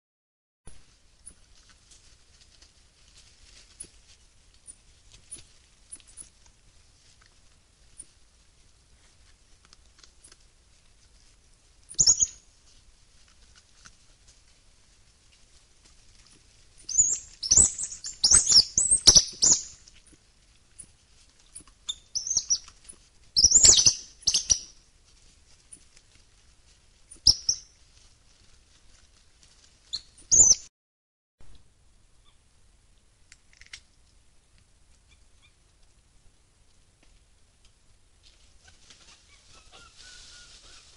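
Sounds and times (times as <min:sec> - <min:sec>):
coatis chirping and squealing: 0:12.0 - 0:12.4, 0:16.9 - 0:19.8, 0:21.9 - 0:22.7, 0:23.4 - 0:24.7, 0:38.6 - 0:40.9.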